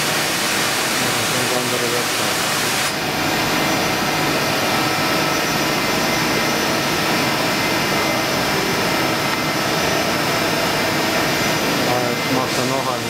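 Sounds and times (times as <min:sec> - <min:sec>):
machining centre running: 0:00.0 - 0:13.0.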